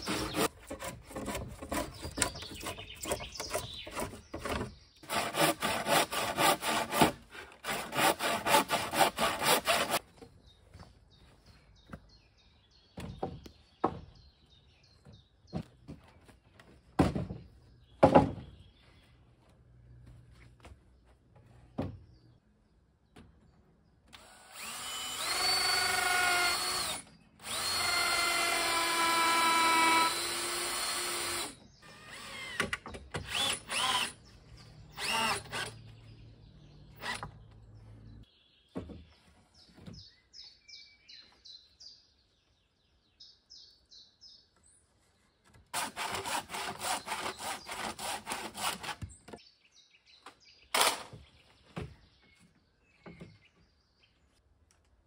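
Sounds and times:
rasping strokes: 0.0s - 10.0s
cordless drill driving screws: 24.1s - 34.2s, 34.9s - 35.8s, 37.0s - 37.3s.

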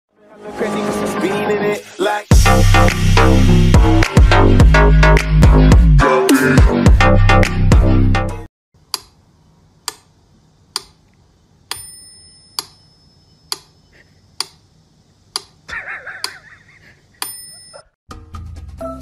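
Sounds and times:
metronome bell ringing: 11.7s - 13.5s, 17.2s - 17.9s.

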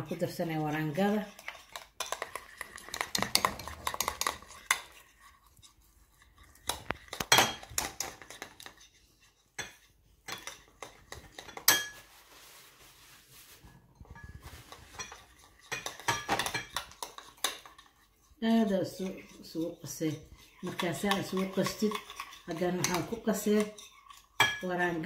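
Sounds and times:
metal spoon clinking on glass bowl: 7.3s - 8.2s, 11.2s - 12.0s, 14.9s - 17.7s, 20.7s - 24.7s.

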